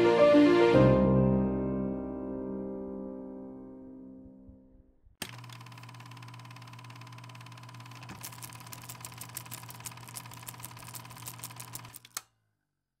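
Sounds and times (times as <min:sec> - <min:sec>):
film projector clattering: 0:05.2 - 0:12.3.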